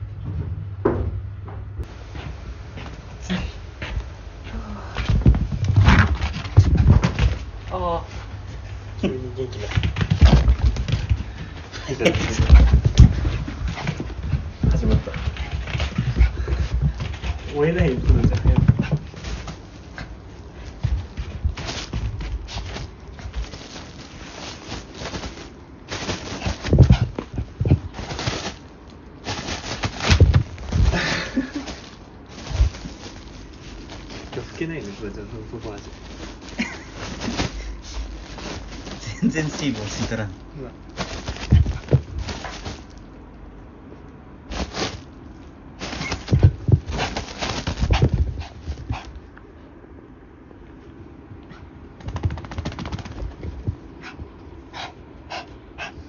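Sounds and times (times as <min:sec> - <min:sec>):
dog scrabbling and rustling: 0:05.0 - 0:08.8, 0:09.5 - 0:43.1, 0:44.5 - 0:49.3, 0:51.5 - 0:55.9
towel rubbing dog: 0:41.0 - 0:43.0, 0:45.8 - 0:49.2.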